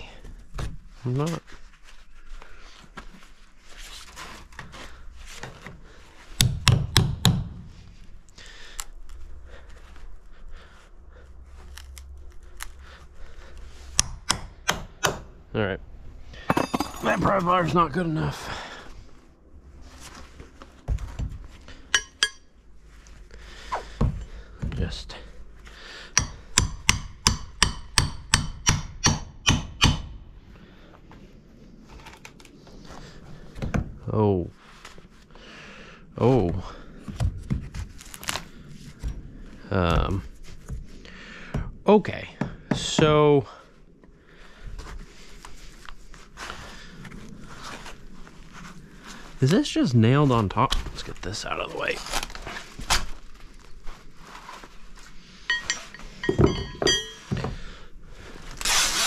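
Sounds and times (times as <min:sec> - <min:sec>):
faint scraping and handling: 0:00.1 - 0:06.4, 0:18.7 - 0:24.3, 0:44.6 - 0:57.4
hammer strikes: 0:06.4 - 0:07.6, 0:14.0 - 0:15.3, 0:21.9 - 0:22.5, 0:26.2 - 0:30.2, 0:55.5 - 0:57.6.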